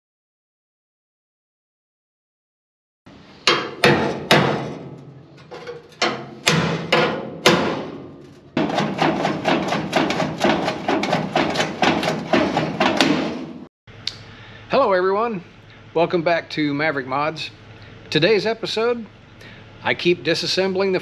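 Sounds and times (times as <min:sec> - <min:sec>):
hammer ringing on steel panel: 0:03.5 - 0:05.2, 0:06.0 - 0:13.3.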